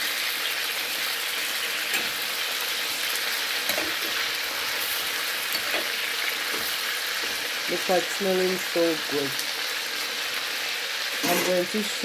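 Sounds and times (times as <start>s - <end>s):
chicken sizzling in hot oil: 0.0s - 12.0s.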